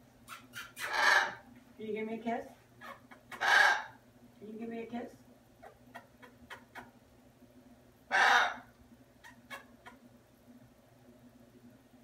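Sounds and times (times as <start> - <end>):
parrot squawk: 0.3 - 1.4, 2.8 - 4.0, 8.1 - 10.0.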